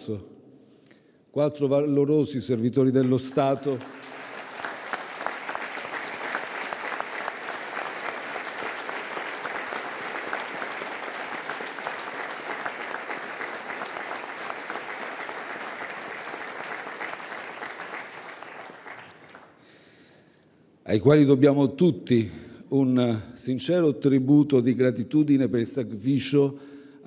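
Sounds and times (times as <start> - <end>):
audience applauding: 3.0 - 19.6.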